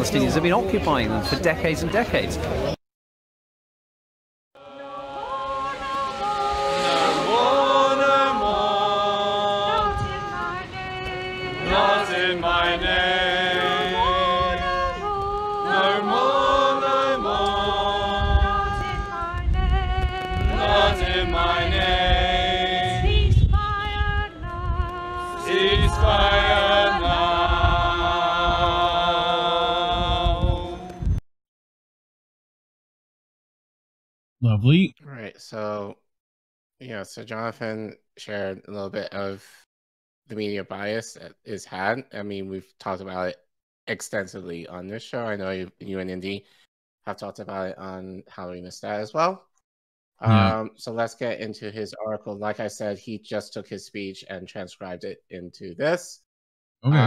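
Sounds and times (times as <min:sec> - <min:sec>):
crowd chanting in unison: 0:04.6 - 0:18.6, 0:20.3 - 0:23.1, 0:25.3 - 0:31.0.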